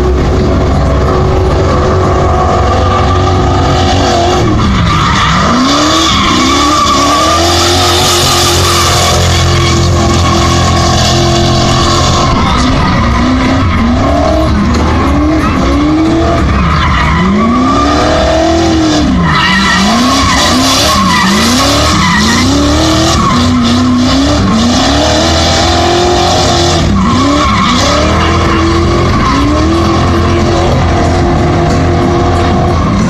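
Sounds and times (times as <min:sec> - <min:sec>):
car engine revving: 0:00.0 - 0:33.0
tires squealing: 0:00.0 - 0:33.0.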